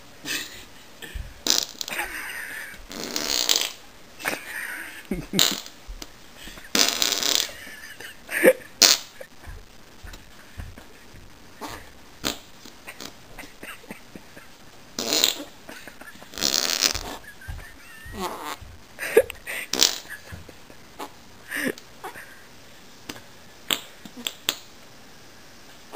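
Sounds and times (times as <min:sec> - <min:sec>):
armpit farts: 0:01.2 - 0:03.8, 0:05.3 - 0:05.8, 0:06.6 - 0:07.8, 0:08.8 - 0:10.8, 0:11.6 - 0:13.5, 0:15.0 - 0:20.4.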